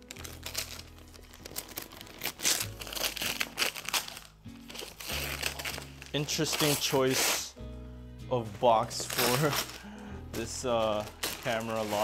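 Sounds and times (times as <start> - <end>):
paper crinkling and tearing: 0.0 - 7.6, 8.6 - 12.0
background music with bass: 2.6 - 12.0.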